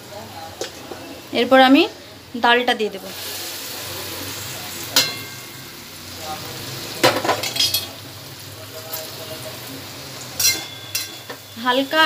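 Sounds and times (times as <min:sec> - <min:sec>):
ghee sizzling in a pan: 0:00.0 - 0:12.0
spoon scraping and clinking pan: 0:10.4 - 0:11.6.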